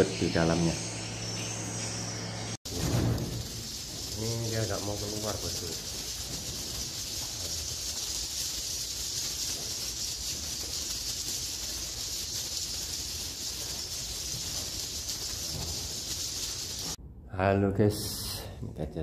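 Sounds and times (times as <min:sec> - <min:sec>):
swiftlets twittering: 0:03.3 - 0:17.0.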